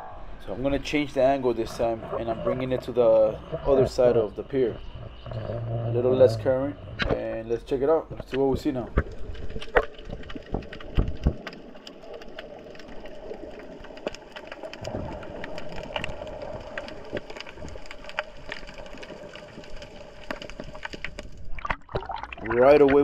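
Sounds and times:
underwater steady hum: 0:00.0 - 0:23.0
clicks and crackles: 0:08.1 - 0:23.0.

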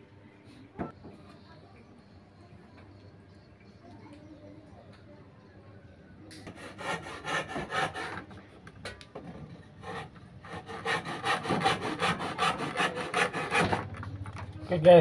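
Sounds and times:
hand tool rasping on wood: 0:06.6 - 0:08.2, 0:09.8 - 0:13.8.

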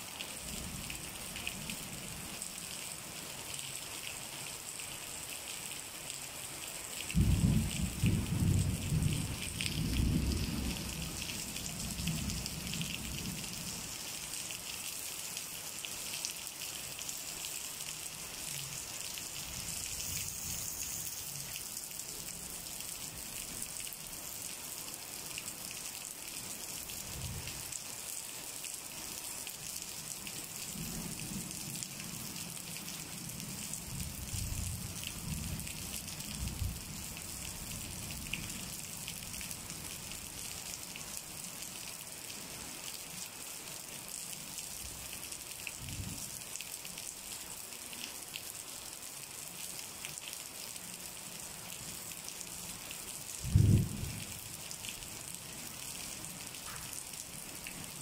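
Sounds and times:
steady rain: 0:00.0 - 0:58.0
thunder rumbling: 0:07.2 - 0:13.4, 0:53.4 - 0:54.3.

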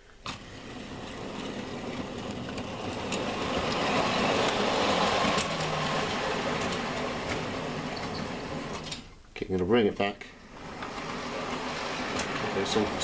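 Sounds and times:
wheels rolling over rails: 0:00.2 - 0:13.0
model train motor hum: 0:00.4 - 0:09.0.

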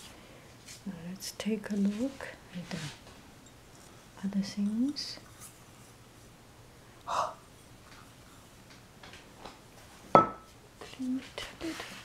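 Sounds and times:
teacup clinking on counter: 0:10.2 - 0:10.5.

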